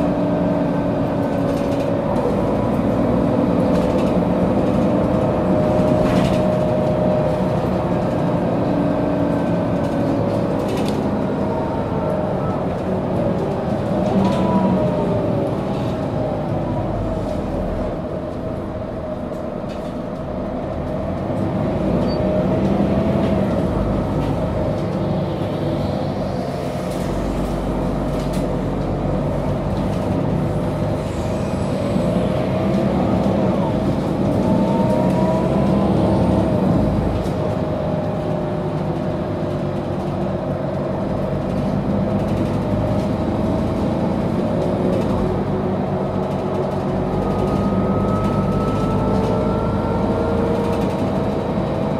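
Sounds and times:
bus engine running: 0:00.0 - 0:51.9
rising whine: 0:46.7 - 0:51.2.

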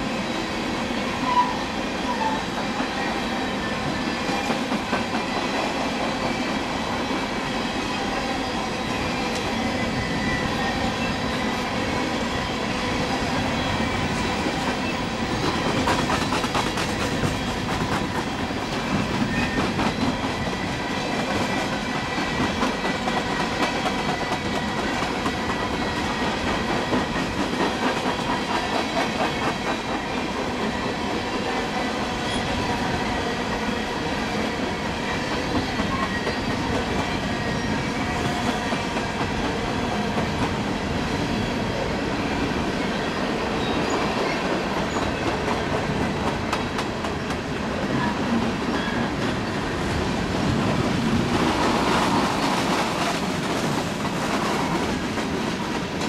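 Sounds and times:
train wheels clacking over rail joints: 0:13.4 - 0:30.8, 0:43.6 - 0:56.0.

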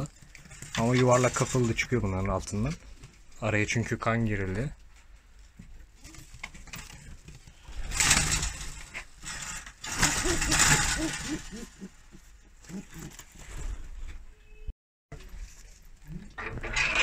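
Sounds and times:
pigeons rustling: 0:04.8 - 0:14.0
pigeons cooing: 0:09.8 - 0:13.6.

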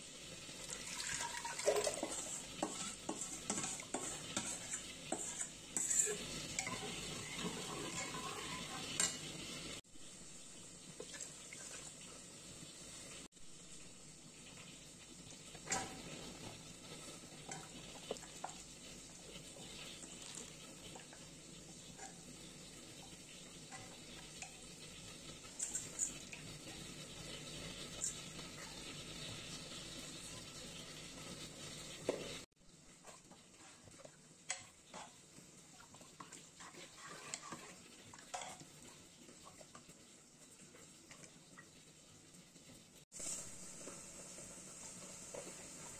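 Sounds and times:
spoon stirring in metal pot: 0:00.8 - 0:09.3, 0:15.5 - 0:29.4, 0:33.0 - 0:39.9.

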